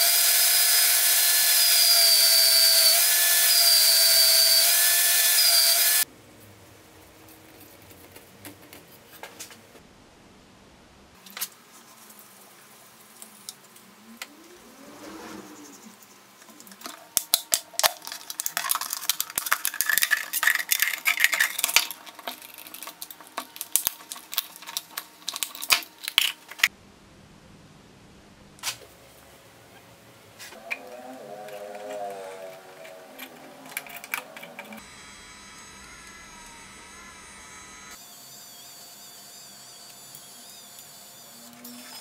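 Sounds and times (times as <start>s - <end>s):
plastic bottle crackling while cut: 17.2s - 26.7s.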